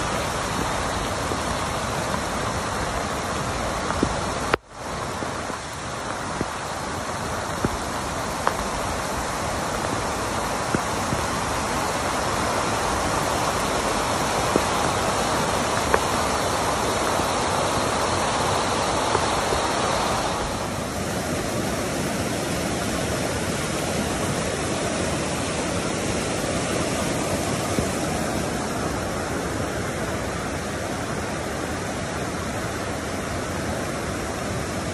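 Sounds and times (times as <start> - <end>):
floodwater rushing through creek: 0.0 - 34.9.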